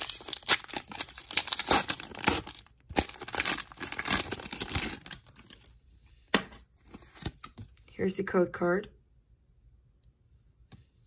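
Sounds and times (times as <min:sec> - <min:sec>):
foil wrapper tearing and crinkling: 0:00.0 - 0:05.7.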